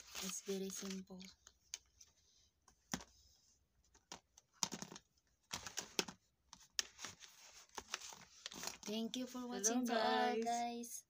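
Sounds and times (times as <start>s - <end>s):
plastic makeup items clicking: 3.9s - 6.9s.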